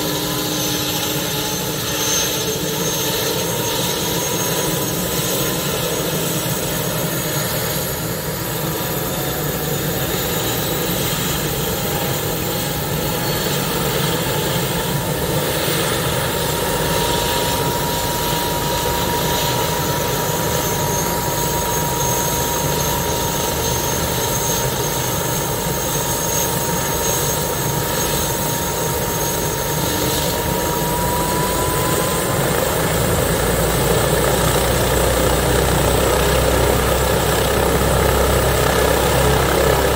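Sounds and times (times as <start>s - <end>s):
helicopter turbine whine: 0.0s - 39.9s.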